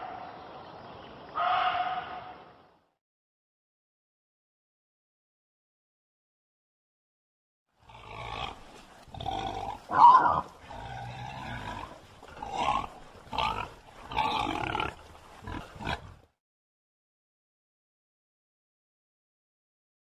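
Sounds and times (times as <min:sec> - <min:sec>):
pig calling: 0:01.4 - 0:02.4, 0:07.9 - 0:16.1.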